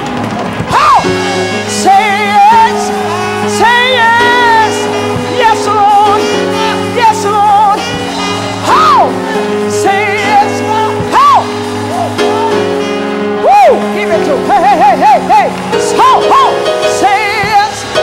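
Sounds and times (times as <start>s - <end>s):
held chords: 0.0s - 18.0s
percussion hits: 0.0s - 18.0s
gospel choir singing: 0.6s - 13.4s.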